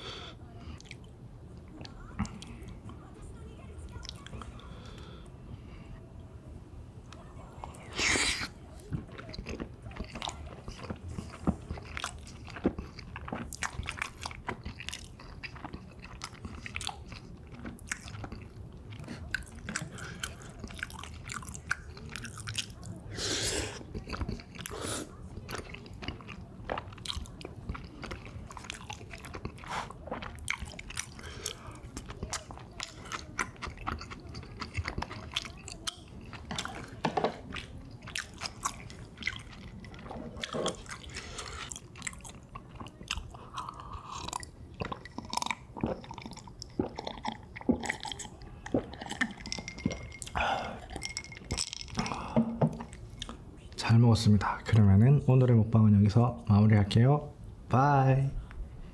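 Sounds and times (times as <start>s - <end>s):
chewing and crunching: 0.6s - 5.0s, 7.1s - 54.6s
breathy sound: 50.4s - 50.9s, 52.0s - 52.7s.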